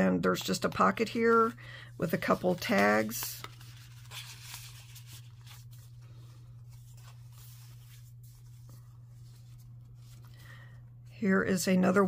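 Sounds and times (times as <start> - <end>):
steady low hum: 0.0 - 12.0
paper rustling and scraping: 0.8 - 10.4
page turning: 2.1 - 10.4.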